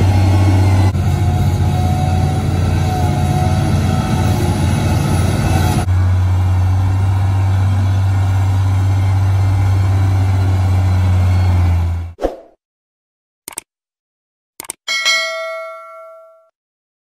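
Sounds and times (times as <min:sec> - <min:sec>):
motor grader diesel engine humming: 0:00.0 - 0:12.2
wheel loader diesel engine: 0:00.0 - 0:12.2.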